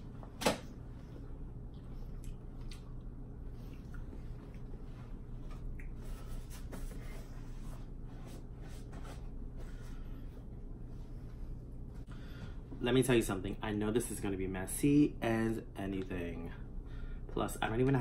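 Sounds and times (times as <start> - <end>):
steady low hum: 0.0 - 18.0
wet mouth clicks and smacks: 1.7 - 3.1.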